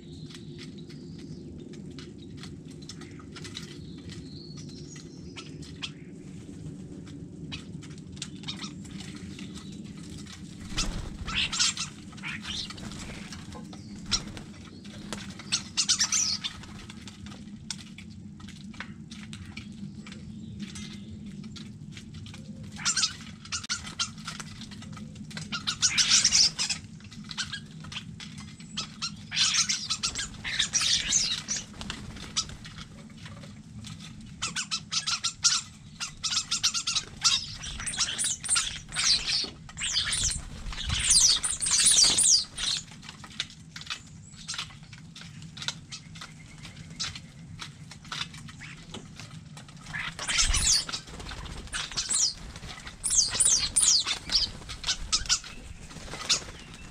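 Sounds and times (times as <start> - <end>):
starlings squawking and chattering: 7.5 - 17.0, 22.7 - 33.2, 34.0 - 56.9
wing flaps: 8.7 - 17.1, 29.4 - 33.2, 36.1 - 43.0, 48.2 - 56.9.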